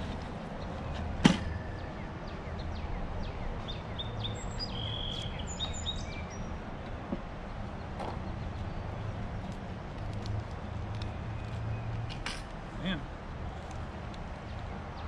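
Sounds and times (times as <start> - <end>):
sharp knock: 1.2 - 1.6.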